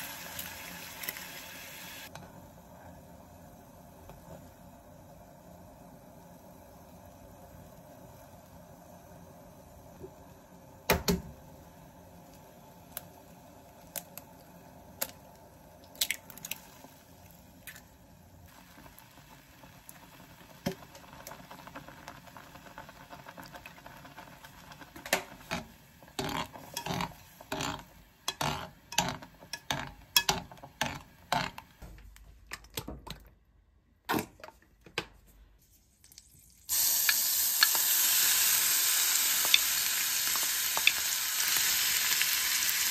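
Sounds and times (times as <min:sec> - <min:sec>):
food sizzling in hot pan: 0:00.0 - 0:31.8, 0:36.7 - 0:42.9
utensils clinking against pots: 0:26.2 - 0:31.6.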